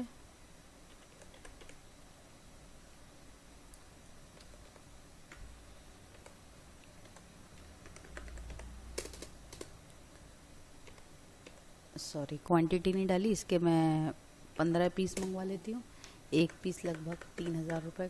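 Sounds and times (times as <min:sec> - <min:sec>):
low background hum: 0:00.0 - 0:18.0
computer keyboard keystrokes: 0:00.9 - 0:01.8, 0:06.1 - 0:07.2, 0:07.8 - 0:09.8, 0:15.0 - 0:15.4, 0:16.4 - 0:18.0.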